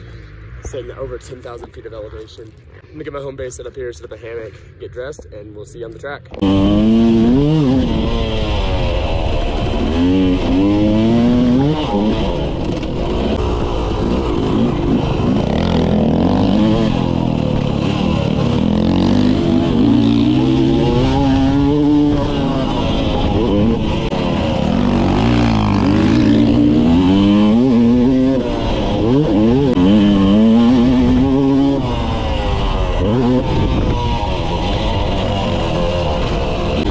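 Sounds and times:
motocross bike engine revving: 6.3s - 36.9s.

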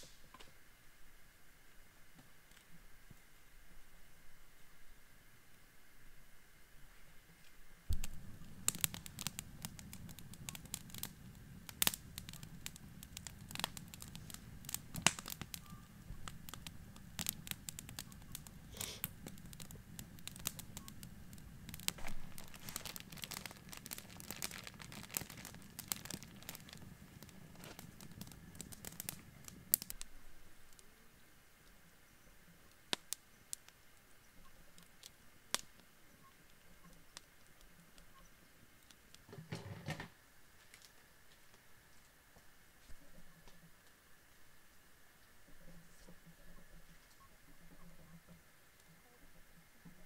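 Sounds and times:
campfire flames rushing: 7.9s - 30.8s, 34.7s - 35.8s
fire popping and crackling: 7.9s - 31.0s, 32.4s - 39.3s.

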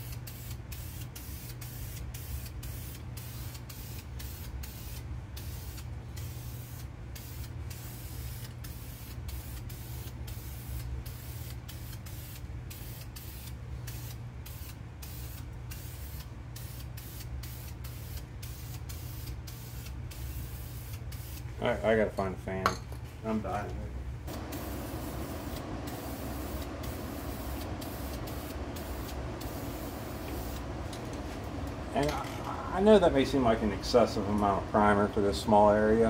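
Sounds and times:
aerosol spray can hissing: 0.0s - 21.5s, 24.3s - 32.8s
steady low hum: 23.2s - 36.0s.

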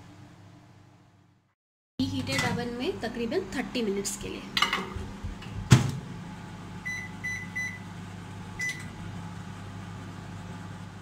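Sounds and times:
keypad beeps: 8.6s - 8.9s.

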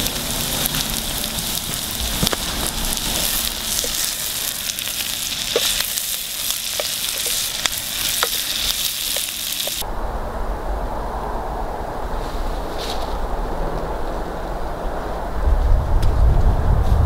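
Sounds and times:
onions sizzling in a pot: 0.0s - 9.8s
low steady rumble: 0.0s - 17.0s.

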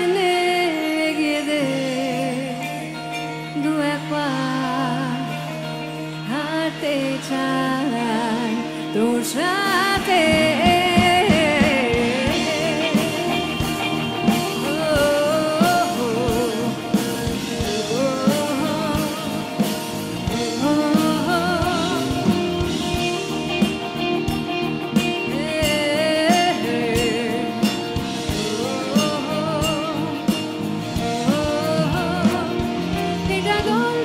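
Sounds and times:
female lead vocal with vibrato: 0.0s - 23.1s, 25.0s - 34.0s
bass guitar: 0.0s - 34.0s
electric guitars: 0.0s - 34.0s
drum kit steady beat: 9.6s - 34.0s.

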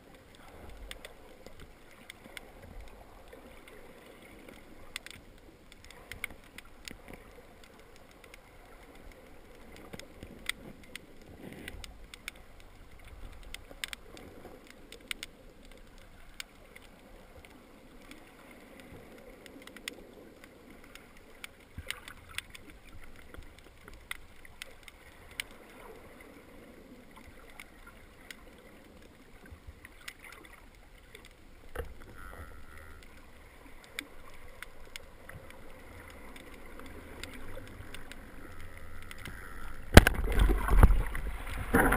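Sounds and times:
low water surges: 0.0s - 41.9s
underwater clicks and crackles: 0.0s - 41.9s
muffled underwater rush: 25.1s - 41.9s.

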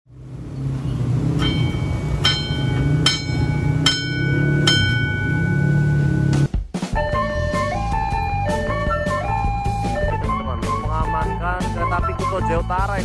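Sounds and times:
steady low rumble: 0.1s - 6.5s
electric warning bell ringing: 0.9s - 6.4s.

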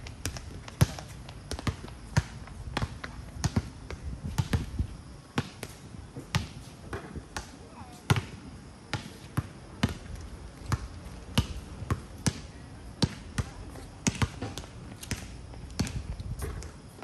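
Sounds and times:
basketballs bouncing on hard court: 0.1s - 4.7s, 8.1s - 8.3s, 8.9s - 16.8s.

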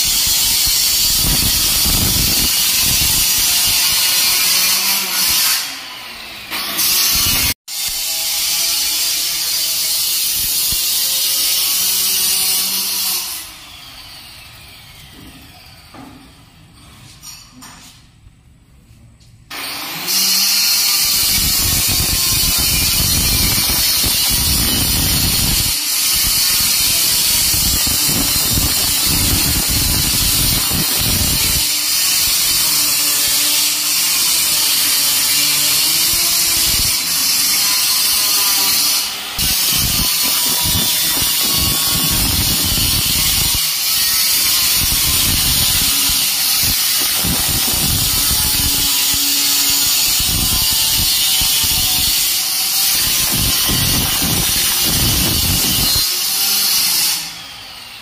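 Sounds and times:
loud mechanical noise with hiss: 0.0s - 4.0s, 20.2s - 38.2s, 38.8s - 57.4s.

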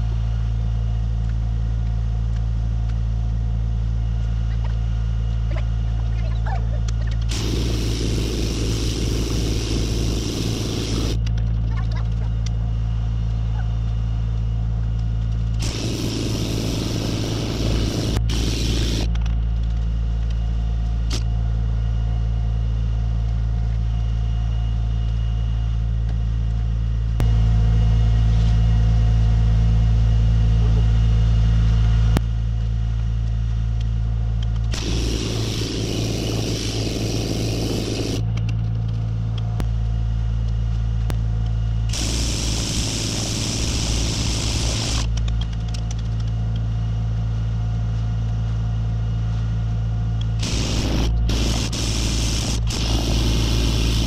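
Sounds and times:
pneumatic tamper hammering: 7.2s - 11.2s, 15.6s - 19.2s, 34.7s - 38.3s, 41.9s - 45.2s, 50.4s - 54.0s
air compressor humming: 7.2s - 11.6s, 15.5s - 19.2s, 34.7s - 39.0s, 41.9s - 45.2s, 50.3s - 54.0s.

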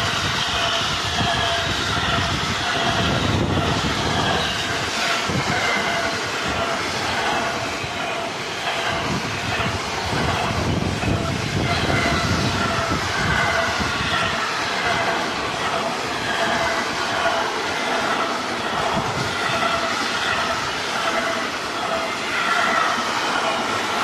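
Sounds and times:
train wheels rumbling on rails: 0.0s - 24.0s.

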